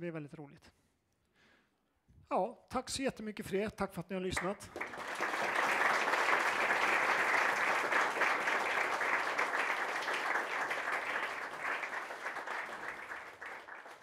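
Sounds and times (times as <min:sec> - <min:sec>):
audience applauding: 0:04.4 - 0:14.0.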